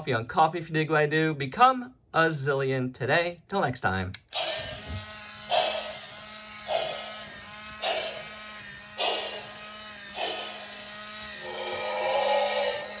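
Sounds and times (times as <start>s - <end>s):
low motor hum: 4.4s - 13.0s
wavering electronic sound: 6.7s - 8.4s, 9.0s - 13.0s
falling electronic toy sound: 9.0s - 13.0s.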